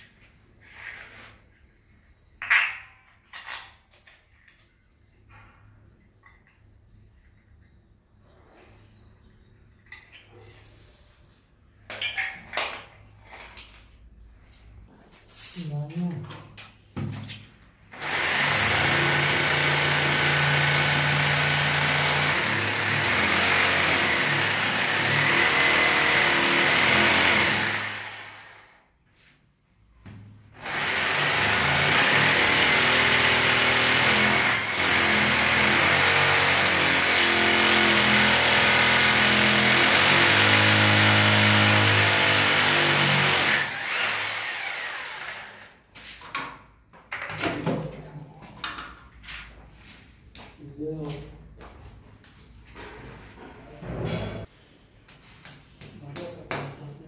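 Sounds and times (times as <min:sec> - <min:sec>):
hammer drill boring into tile: 0:18.0 - 0:28.8, 0:30.6 - 0:45.7.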